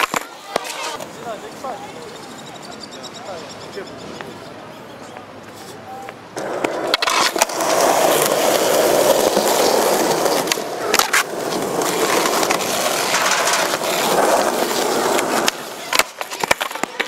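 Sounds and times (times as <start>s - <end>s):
skateboard clacks: 0.0s - 1.4s, 5.1s - 17.0s
skateboard wheels rolling on concrete: 0.0s - 17.0s.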